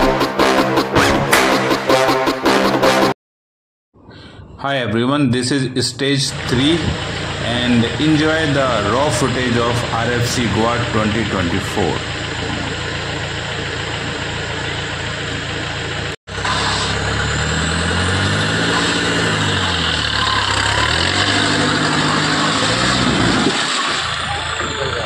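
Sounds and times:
truck engine pulling under load: 6.3s - 25.0s.

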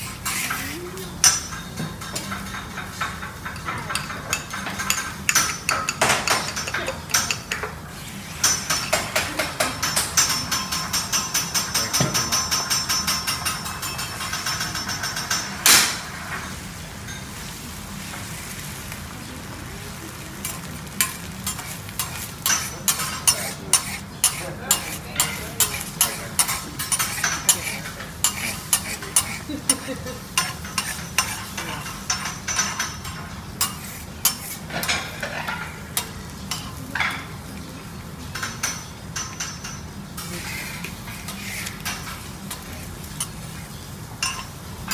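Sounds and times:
frying sizzle: 0.0s - 44.9s
loud metal clang: 15.6s - 16.1s
spatula chopping on griddle: 20.4s - 36.7s.

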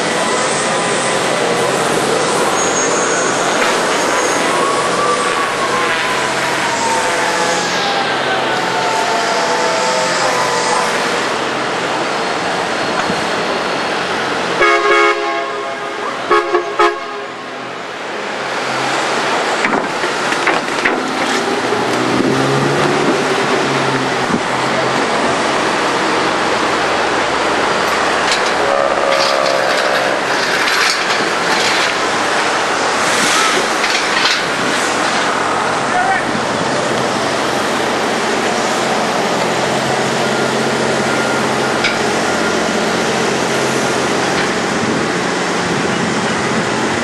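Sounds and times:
car engines and street noise: 0.0s - 47.0s
car horn honking: 14.6s - 17.4s, 28.5s - 30.2s.

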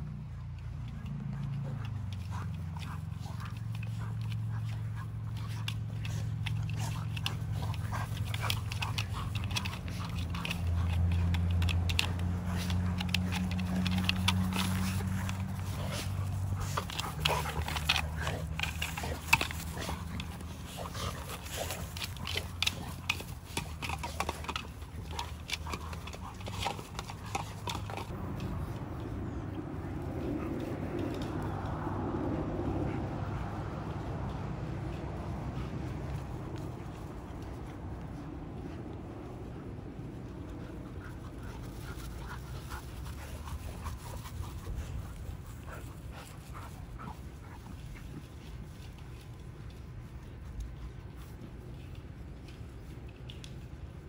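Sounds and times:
dog panting: 0.0s - 28.6s, 29.9s - 49.2s
steady low hum: 0.0s - 54.0s
steady low rumble: 0.0s - 54.0s.

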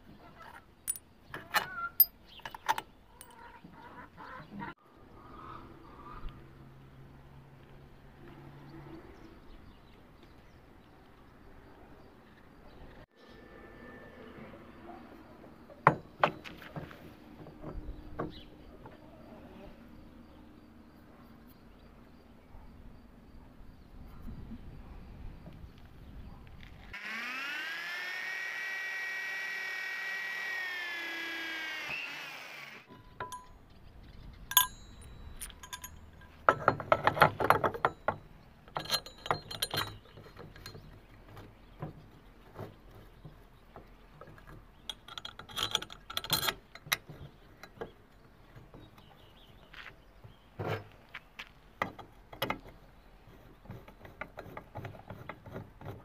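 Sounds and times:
socket wrench turning bolt: 0.9s - 3.3s, 34.5s - 38.0s
metallic clinks and knocks: 0.9s - 3.5s, 32.9s - 33.7s, 34.4s - 41.5s, 44.2s - 49.0s
electric drill whining: 27.0s - 32.9s.

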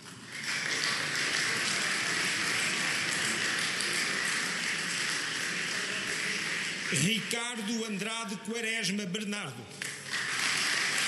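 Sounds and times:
audience applauding: 0.0s - 7.6s, 9.8s - 11.0s.

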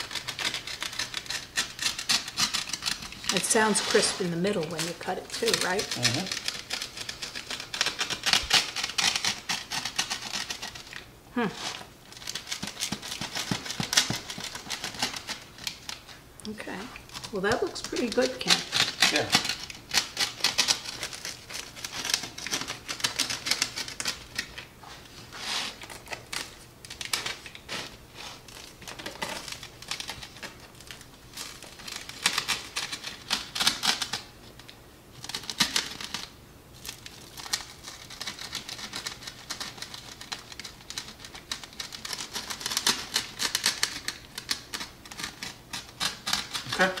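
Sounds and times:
pizza cutter crunching crust: 0.0s - 16.1s, 17.0s - 24.7s, 35.2s - 47.0s.

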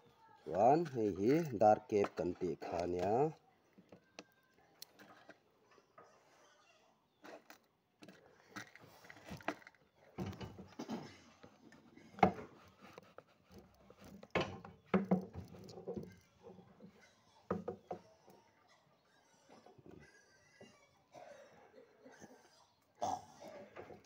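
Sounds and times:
tools knocking on wooden table: 14.3s - 16.1s, 17.5s - 18.0s.

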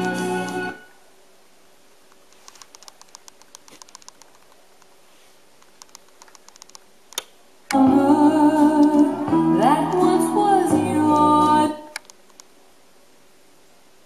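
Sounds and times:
music with singing: 0.0s - 0.9s, 7.7s - 12.0s
record clicks: 2.2s - 5.0s, 5.6s - 7.8s, 8.7s - 9.1s, 11.0s - 12.5s.

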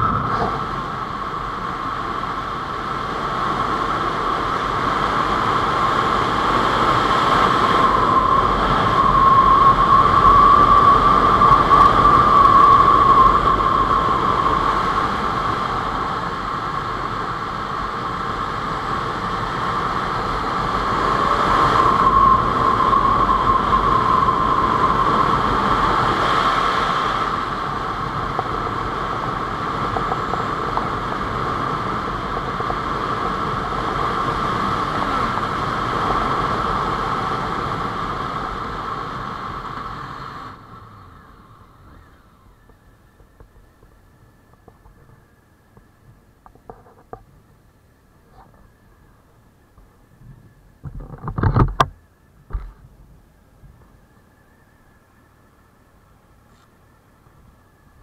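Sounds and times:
motorcycle engine: 0.0s - 3.0s
wind rushing over microphone: 0.0s - 47.5s.

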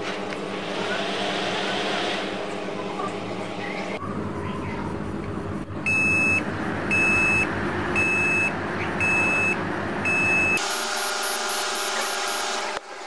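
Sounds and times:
computer fans whirring: 0.0s - 13.0s
high computer beeps: 5.9s - 10.6s.

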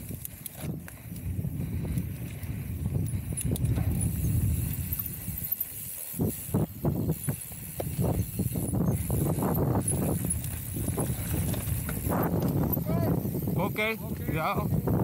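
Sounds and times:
tyres rumbling on trail: 0.0s - 15.0s
wind on microphone: 0.0s - 15.0s
bike knocks and clatters: 7.1s - 12.9s.

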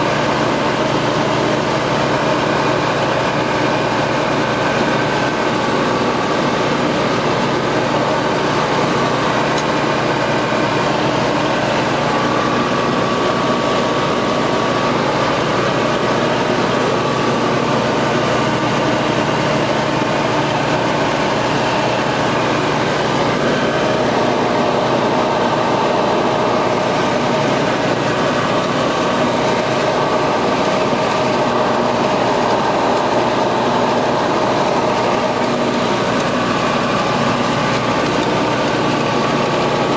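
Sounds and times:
aircraft engine and propeller hum: 0.0s - 39.9s.

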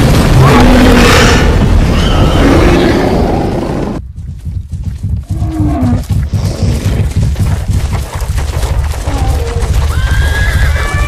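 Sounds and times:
heavy animal footfalls: 4.0s - 11.0s.

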